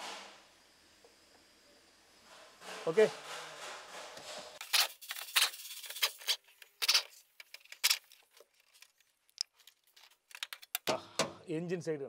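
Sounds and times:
parts clicking and rattling: 4.0 - 11.4.

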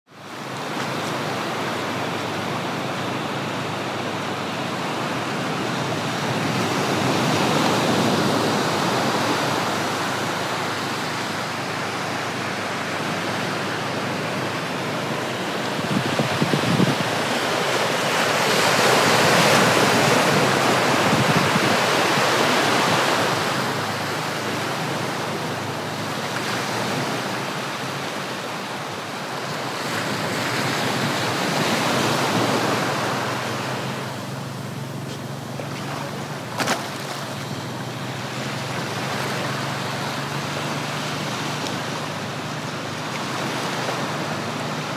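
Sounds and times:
sea surf breaking: 0.2 - 44.9
wind buffeting microphone: 15.0 - 17.7, 18.6 - 24.0.

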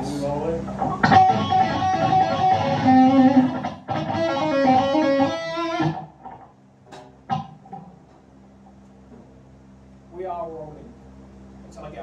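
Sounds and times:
electric guitar riff: 0.7 - 6.5.

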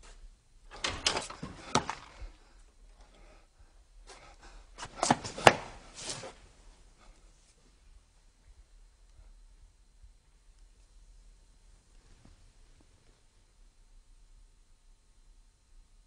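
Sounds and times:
wooden door knocking and clattering: 0.7 - 2.4.

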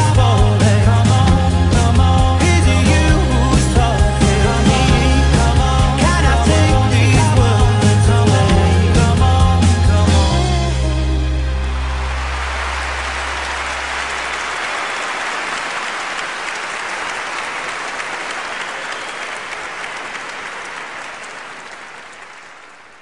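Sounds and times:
audience applauding: 11.4 - 23.0.

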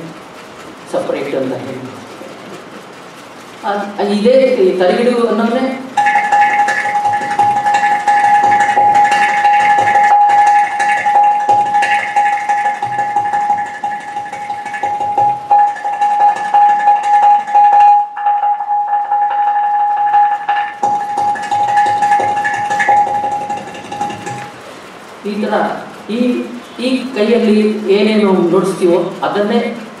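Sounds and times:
steady high tone: 3.9 - 25.2
clay pot drum strokes: 6.0 - 24.6.

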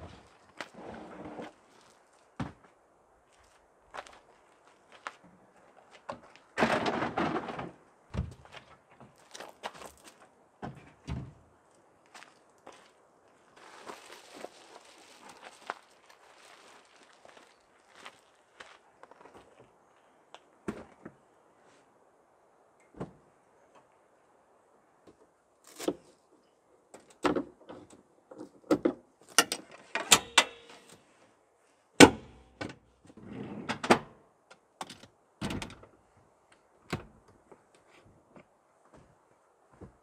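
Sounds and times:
seat latches clicking and clunking: 28.8 - 30.7.

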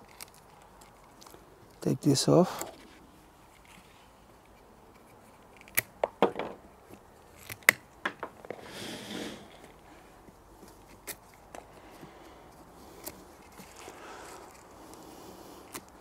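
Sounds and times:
leaves rustling: 8.6 - 16.0.

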